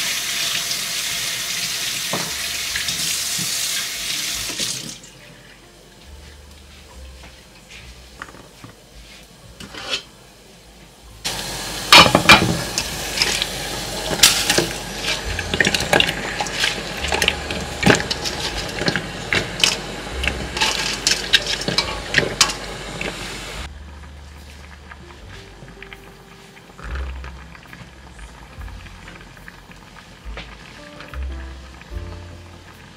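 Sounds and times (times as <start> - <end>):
steady hiss: 8.7 - 23.7
colander and pot clinking: 11.9 - 23.3.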